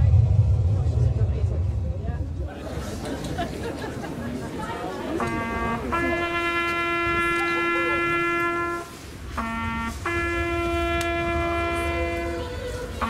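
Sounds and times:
solo trumpet playing held notes: 0:05.2 - 0:13.0.

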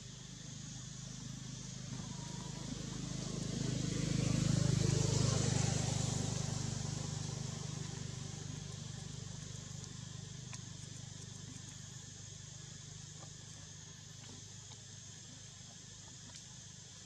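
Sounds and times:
vehicle engine passing: 0:00.6 - 0:10.9.

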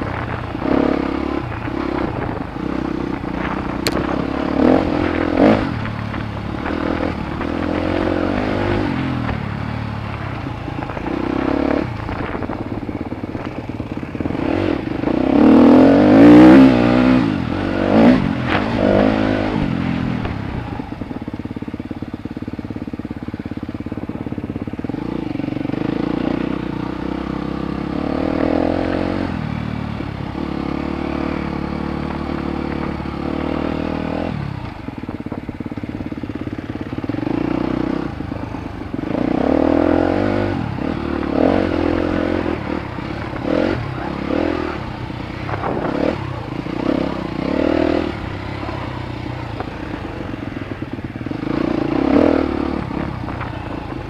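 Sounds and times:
bike rattling and knocking: 0:00.0 - 0:15.6
dirt bike engine revving: 0:00.0 - 0:21.5, 0:22.1 - 0:54.0.

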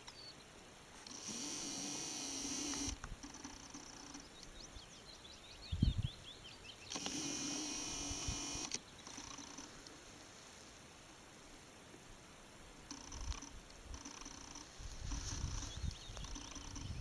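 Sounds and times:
camcorder zoom motor whining: 0:01.0 - 0:04.0, 0:06.9 - 0:08.8
songbird twittering: 0:15.4 - 0:17.0.

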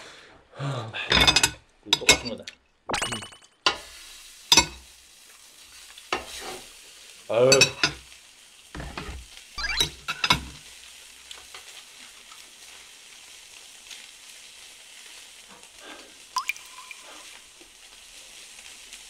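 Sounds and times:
beef sizzling in a frying pan: 0:03.6 - 0:19.0.

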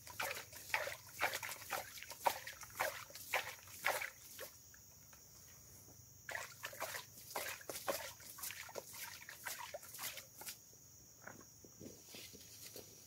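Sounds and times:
liquid sloshing and splashing: 0:00.0 - 0:04.6, 0:06.3 - 0:10.6.

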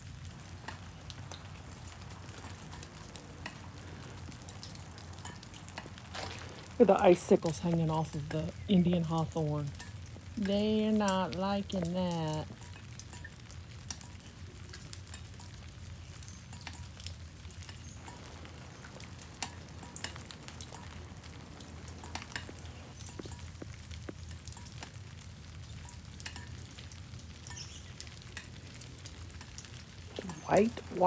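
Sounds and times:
freezing drizzle pattering on ice: 0:00.0 - 0:31.0
low steady hum: 0:00.0 - 0:31.0.

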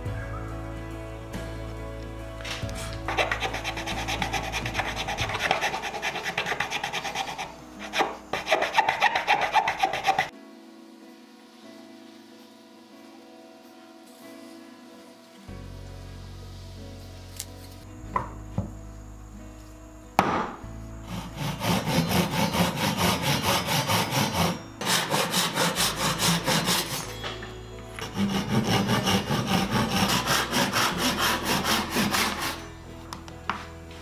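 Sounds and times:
handsaw cutting wood: 0:03.1 - 0:10.3, 0:21.1 - 0:27.1, 0:28.0 - 0:32.6
sharp knock: 0:20.2 - 0:20.6.

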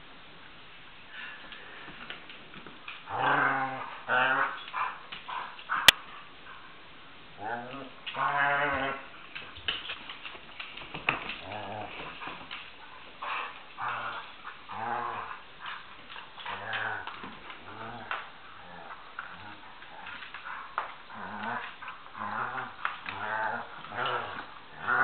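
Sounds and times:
dogs growling in play: 0:01.8 - 0:06.6, 0:07.3 - 0:25.0
claws clicking on hardwood floor: 0:07.6 - 0:25.0.

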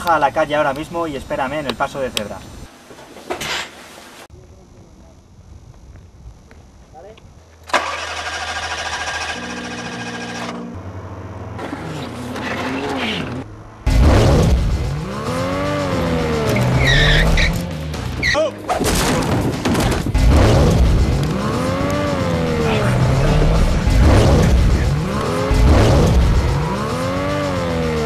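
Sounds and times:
car engine revving hard: 0:11.6 - 0:17.6, 0:20.2 - 0:28.0
tyres squealing: 0:16.5 - 0:17.6, 0:18.2 - 0:18.8.

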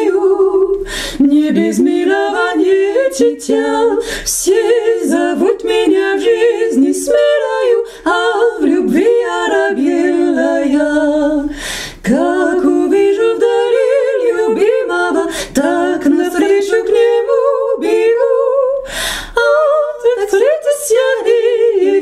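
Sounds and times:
woman singing unaccompanied: 0:00.0 - 0:22.0
woman breathing in: 0:00.8 - 0:01.2, 0:04.0 - 0:04.3, 0:11.5 - 0:12.0, 0:15.3 - 0:15.6, 0:18.8 - 0:19.4.

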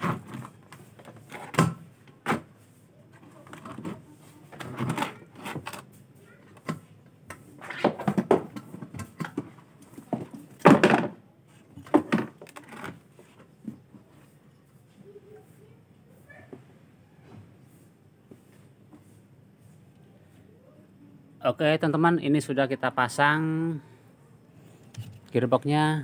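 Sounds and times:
plastic knocks and clunks: 0:07.7 - 0:11.2, 0:11.8 - 0:13.0.

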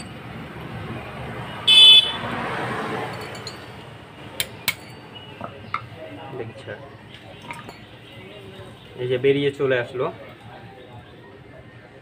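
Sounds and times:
vehicle noise: 0:00.0 - 0:12.0
vehicle horn blast: 0:01.6 - 0:02.3.

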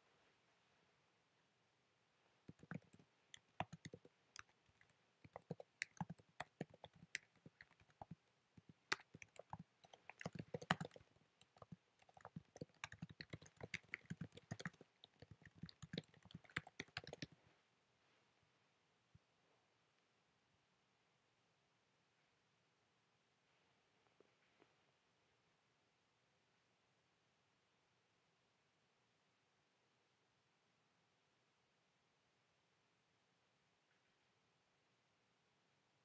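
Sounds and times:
keyboard typing clicks: 0:02.5 - 0:17.4.

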